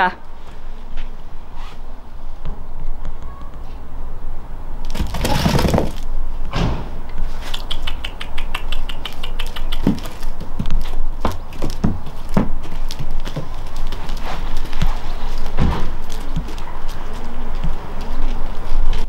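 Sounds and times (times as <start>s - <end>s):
goat hooves knocking on box: 4.9s - 6.0s, 9.8s - 13.6s
steady low rumble: 5.9s - 19.0s.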